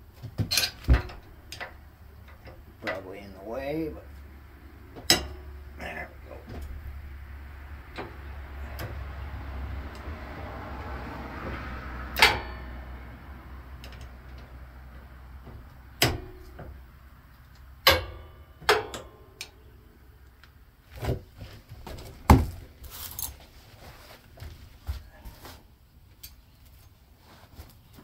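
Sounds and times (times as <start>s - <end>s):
metal tools clinking on steel: 22.9s - 23.4s.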